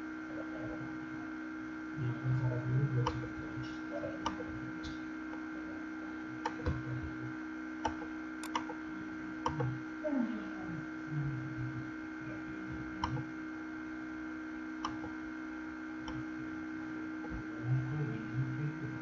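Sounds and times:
steady electrical hum: 0:00.0 - 0:19.0
keyboard typing clicks: 0:07.9 - 0:08.8.

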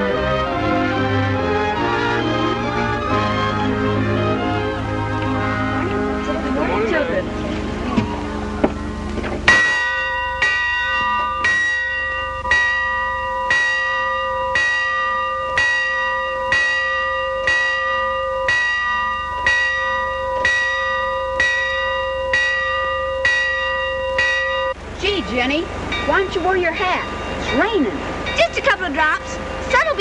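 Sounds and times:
bell ringing: 0:08.4 - 0:30.0.

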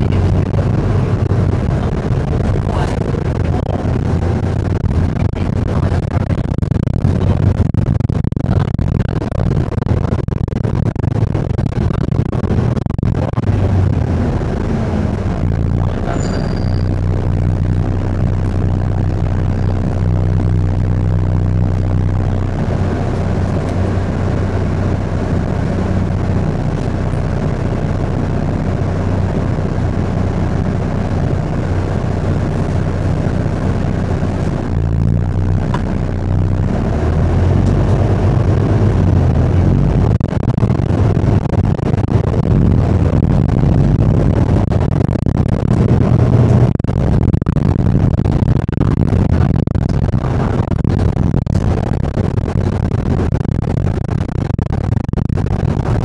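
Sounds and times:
road noise: 0:00.0 - 0:10.2, 0:11.2 - 0:48.4
bus engine running: 0:00.0 - 0:56.0
faint high beep: 0:16.0 - 0:17.0.

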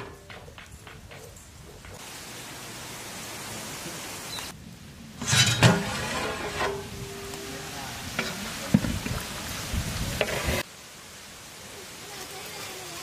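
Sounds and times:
food sizzling: 0:01.3 - 0:10.7
metal ladle clanking against pot: 0:05.2 - 0:07.5
pot ringing: 0:06.5 - 0:08.4.

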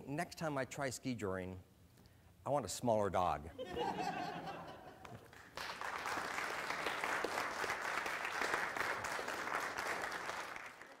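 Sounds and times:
audience applause: 0:05.0 - 0:11.0.

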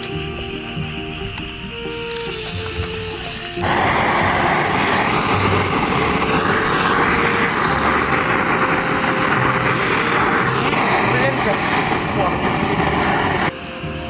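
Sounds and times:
motorcycle engine drone: 0:02.5 - 0:14.0
wind noise rushing: 0:03.6 - 0:13.5.

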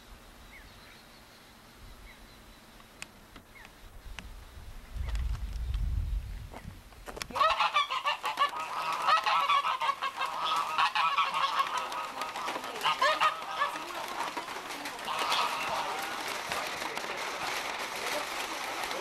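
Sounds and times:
waterfowl calling: 0:07.3 - 0:19.0.

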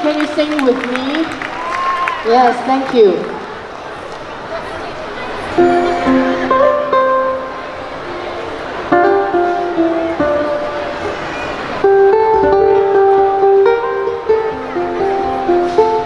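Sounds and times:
ukulele melody with chords: 0:05.6 - 0:16.0.

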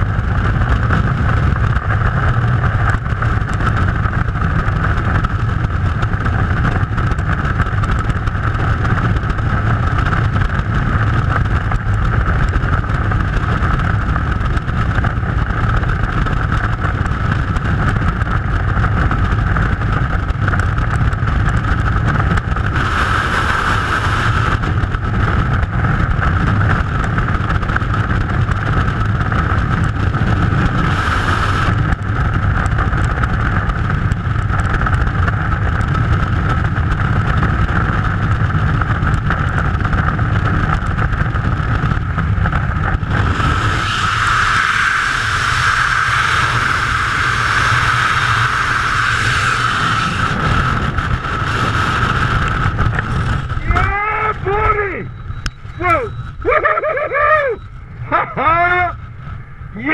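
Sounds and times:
wind roaring over microphone: 0:00.0 - 0:59.9
whistling wind tone: 0:42.0 - 0:59.9.

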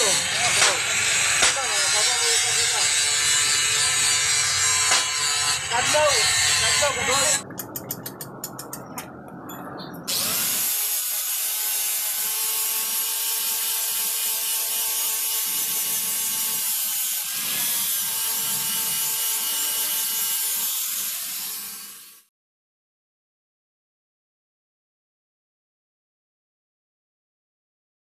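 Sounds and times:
angle grinder grinding metal: 0:00.0 - 0:07.4, 0:10.1 - 0:22.3.

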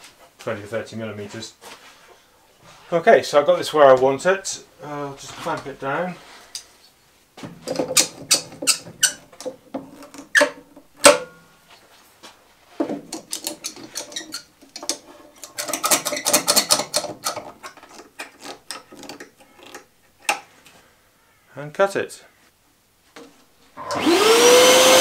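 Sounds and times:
metal clamps clicking and rattling: 0:07.6 - 0:11.3, 0:12.9 - 0:20.4.

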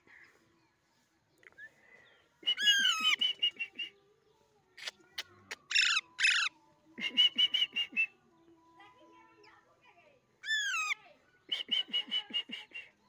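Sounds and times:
harsh parakeet squawks: 0:05.7 - 0:06.5, 0:10.4 - 0:11.0
parakeets calling: 0:05.7 - 0:06.5, 0:10.4 - 0:11.0.

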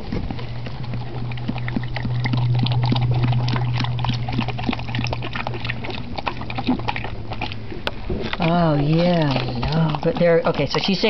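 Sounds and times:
dog licking and chewing: 0:00.0 - 0:11.0.

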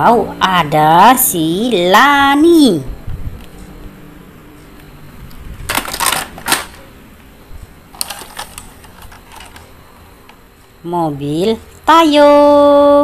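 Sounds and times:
plastic toys clicking and clattering: 0:05.7 - 0:06.8, 0:08.0 - 0:09.7.

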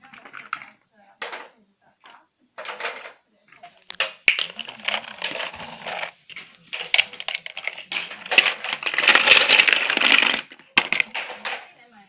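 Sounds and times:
plastic blocks clattering: 0:00.0 - 0:11.8
toy truck scraping on floor: 0:04.7 - 0:06.2.

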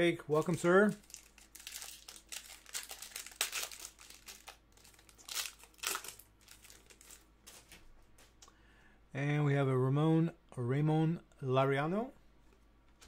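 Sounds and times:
wrapper crinkling: 0:00.4 - 0:07.8.

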